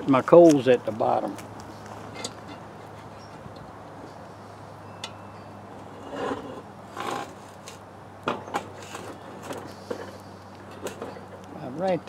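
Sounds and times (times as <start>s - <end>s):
cast iron pot scraping on metal: 2.1s - 3.5s, 5.8s - 7.4s.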